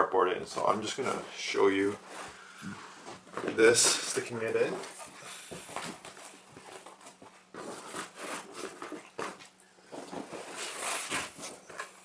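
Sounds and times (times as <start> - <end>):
cardboard scraping against fabric: 3.5 - 12.0.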